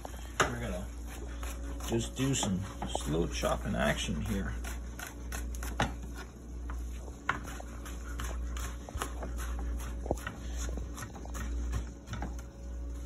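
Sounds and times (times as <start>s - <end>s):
steady low hum: 0.0s - 13.0s
knife chopping on cutting board: 4.2s - 6.3s, 7.2s - 12.5s.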